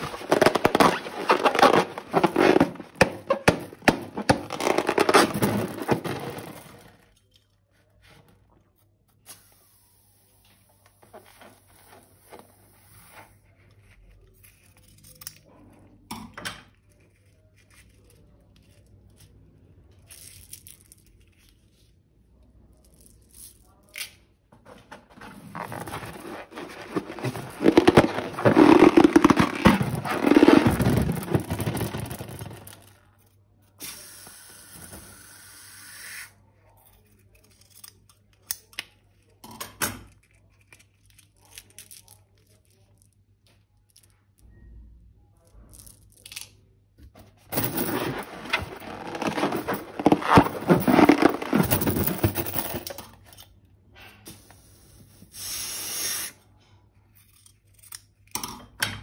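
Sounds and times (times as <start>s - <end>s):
rubbing and scraping crackle: 0.0s - 8.2s, 25.1s - 33.0s, 47.5s - 53.1s.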